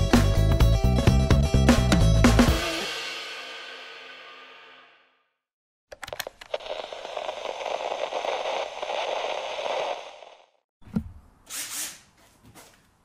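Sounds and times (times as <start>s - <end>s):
tv static hiss: 6.5s - 10.6s.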